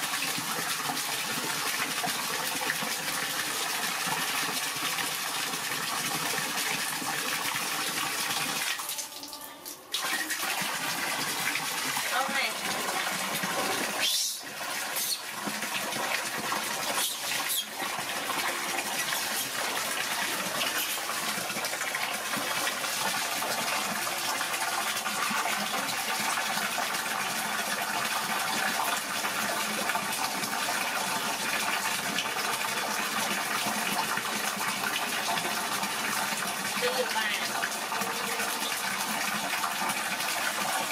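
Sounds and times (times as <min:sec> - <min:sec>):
water pouring into metal basin: 0:00.0 - 0:40.9.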